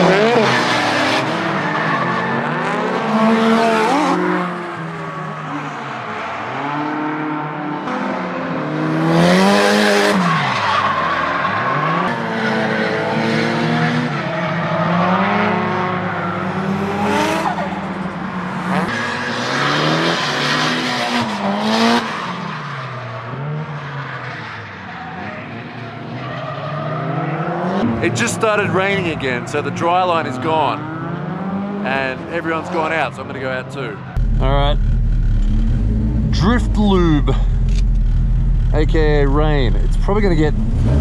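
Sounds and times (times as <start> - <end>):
car engine revving: 0.0 - 23.8, 26.0 - 41.0
tyres skidding: 0.0 - 41.0.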